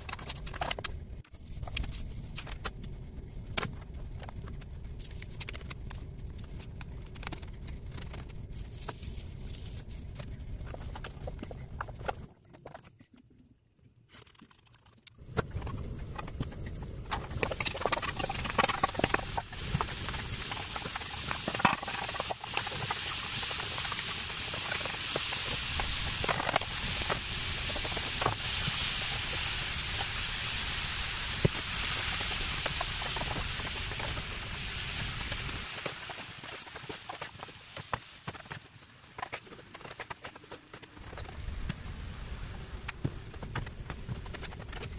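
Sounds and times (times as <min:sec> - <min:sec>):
vegetables sizzling in a wok: 0:17.2 - 0:38.2.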